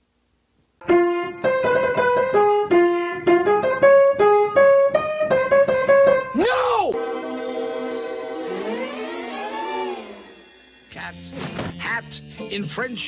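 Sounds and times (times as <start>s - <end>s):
piano melody of single notes: 0.8s - 6.3s.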